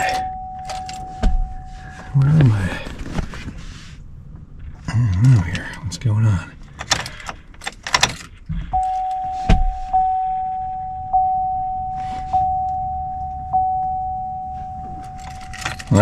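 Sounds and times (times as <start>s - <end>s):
car warning chime: 0.0s - 2.9s, 8.7s - 16.0s
keys jangling in ignition: 0.1s - 1.2s, 6.7s - 9.2s, 14.8s - 16.0s
thump: 9.5s - 9.9s.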